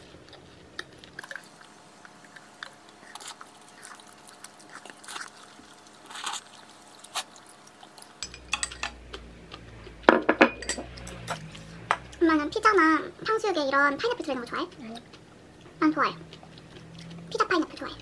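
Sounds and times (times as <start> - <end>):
chewing: 0.0 - 10.1, 13.7 - 18.0.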